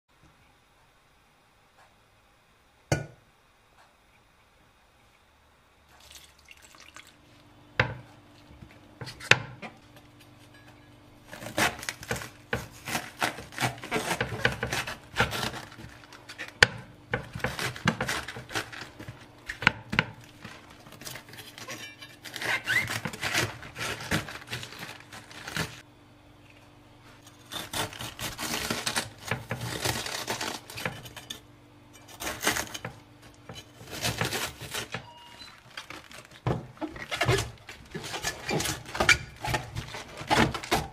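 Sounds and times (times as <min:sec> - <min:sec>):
faint steady hum: 0:00.1 - 0:40.9
knife crunching through cabbage: 0:11.2 - 0:25.8, 0:27.2 - 0:31.4, 0:32.0 - 0:40.9.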